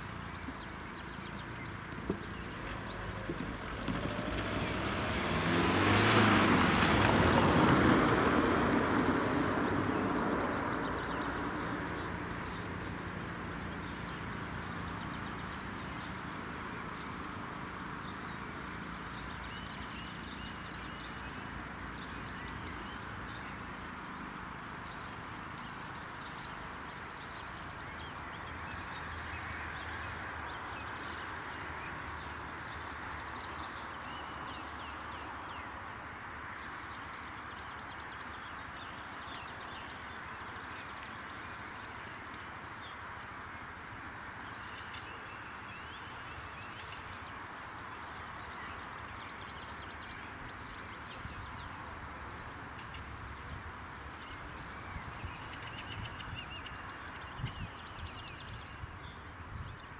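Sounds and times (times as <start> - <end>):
birds chirping: 0.0 - 59.9
car driving past: 1.4 - 24.4.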